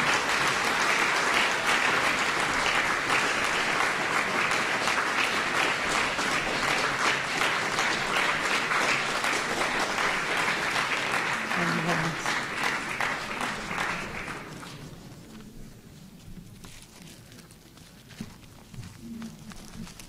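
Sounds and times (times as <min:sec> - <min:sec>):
audience applauding: 0:00.0 - 0:15.2.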